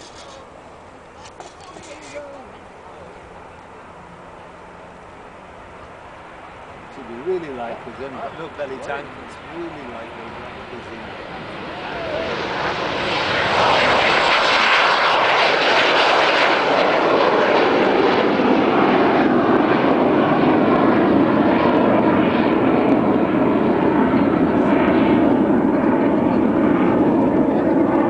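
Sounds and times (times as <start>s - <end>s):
jet engines roaring at takeoff: 0.0s - 28.0s.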